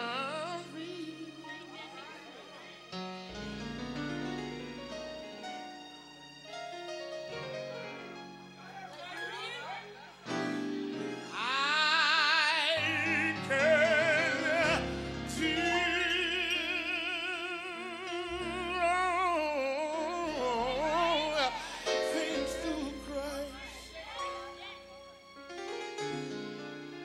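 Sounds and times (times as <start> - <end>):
person singing with vibrato: 0.0 - 2.4, 11.2 - 24.8
keyboard accompaniment: 0.0 - 27.0.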